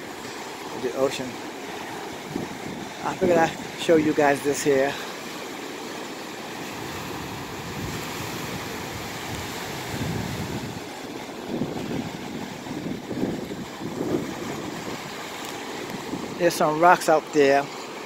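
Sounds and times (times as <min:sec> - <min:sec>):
waves breaking on rocks: 0:00.0 - 0:18.0.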